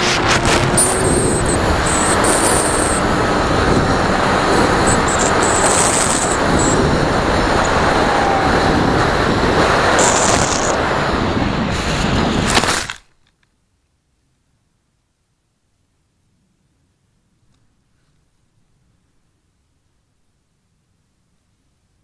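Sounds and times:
model airplane motor: 0.0 - 8.8, 9.6 - 10.8
airflow rush: 0.0 - 12.6.

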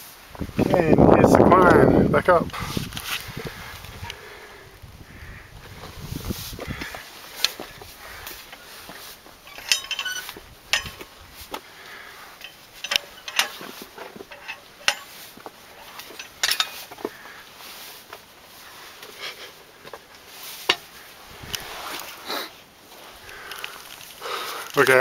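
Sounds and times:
metal chains clinking and knocking: 9.4 - 11.2, 12.4 - 17.1.

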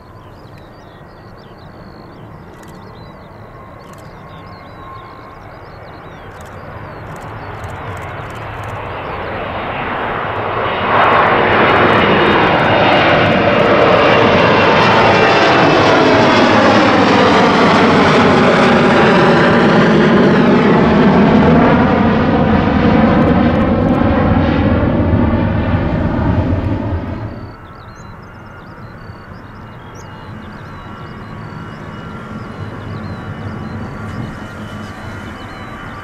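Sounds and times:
jet airliner taking off: 0.0 - 36.0.

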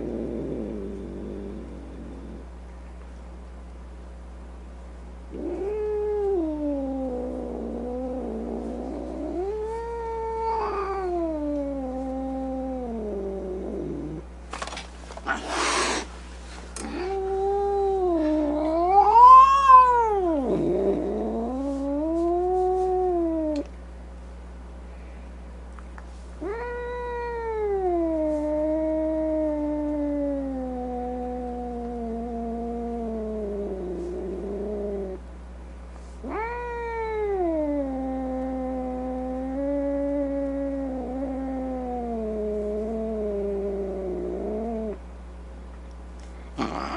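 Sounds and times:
cat yowling: 9.4 - 12.6, 17.0 - 21.1, 26.4 - 32.9, 36.2 - 42.1.

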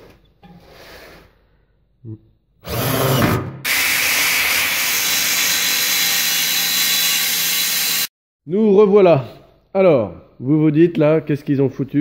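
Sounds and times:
angle grinder cutting steel: 3.7 - 8.1.

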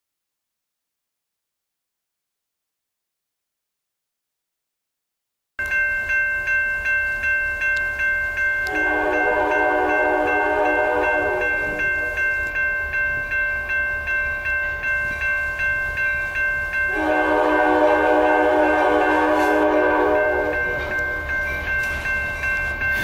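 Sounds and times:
railroad crossing bell ringing: 5.6 - 23.0
locomotive air horn: 8.7 - 12.1, 16.9 - 20.8.

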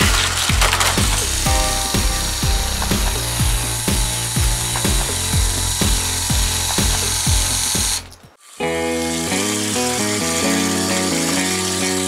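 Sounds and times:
kick drum beat: 0.0 - 8.0
bass and synth tones: 0.0 - 12.0
electronic music: 0.0 - 12.0.

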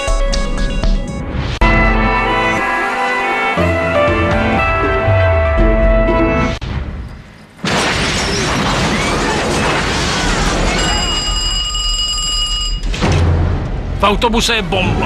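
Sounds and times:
music: 0.0 - 6.6
explosion with rumble: 6.6 - 11.2
high ringing tone: 10.7 - 13.0.

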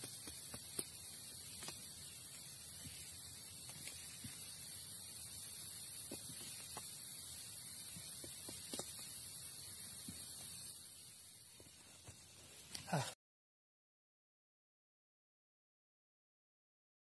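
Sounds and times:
steady high-pitched hiss: 0.0 - 13.2.

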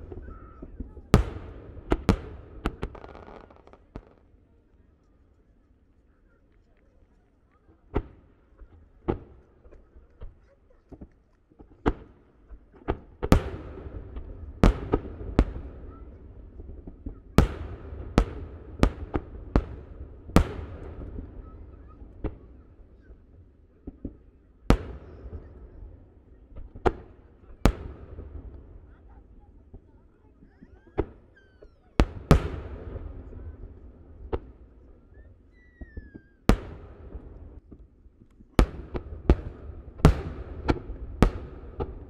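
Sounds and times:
firework shells booming: 0.0 - 4.3, 30.6 - 37.8, 38.6 - 42.0
low rumbling echo: 32.0 - 35.0, 36.5 - 37.7, 38.6 - 42.0.

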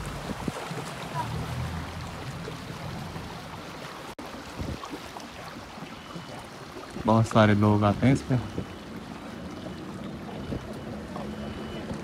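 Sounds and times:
speedboat engine idling: 8.0 - 12.0.

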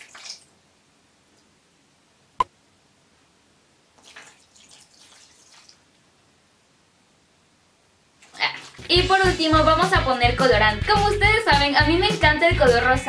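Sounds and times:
liquid trickling and splashing: 0.0 - 0.6, 4.0 - 6.0, 8.2 - 8.9.

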